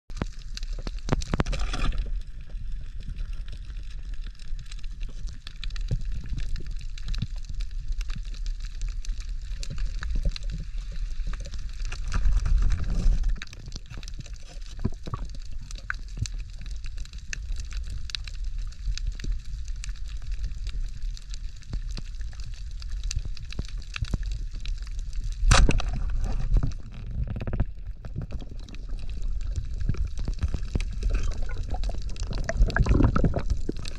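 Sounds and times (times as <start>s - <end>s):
water splashing and sloshing: 0.1s - 17.2s, 25.0s - 33.9s.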